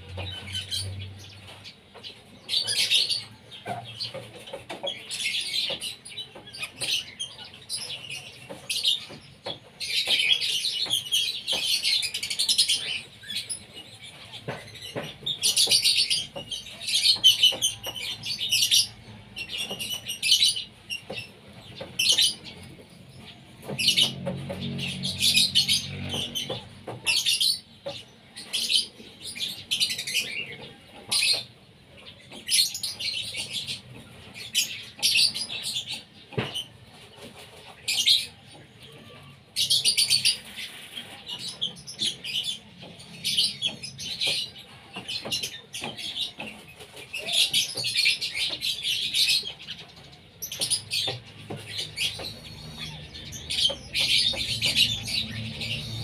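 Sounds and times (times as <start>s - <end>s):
ducks and ducklings peeping: 0.0s - 56.0s.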